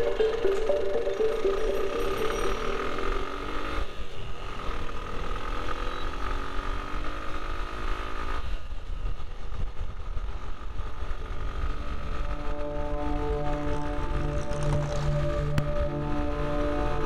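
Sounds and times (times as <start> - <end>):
motorcycle engine slowing: 0.0 - 5.5, 10.4 - 17.0.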